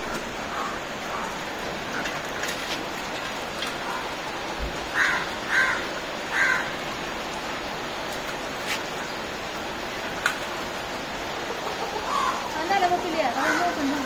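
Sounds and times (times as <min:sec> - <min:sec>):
steady background hiss: 0:00.0 - 0:14.0
bird harsh caw-like calls: 0:00.4 - 0:01.4, 0:04.9 - 0:07.0, 0:11.4 - 0:12.6, 0:13.3 - 0:14.0.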